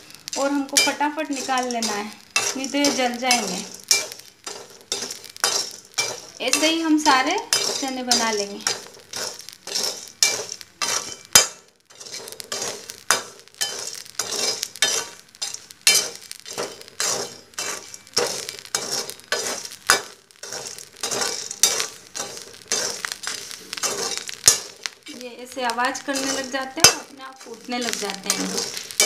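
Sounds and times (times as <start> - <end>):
chickpeas popping: 0.0 - 29.0
metal skimmer scraping salt: 13.6 - 24.8, 25.9 - 29.0.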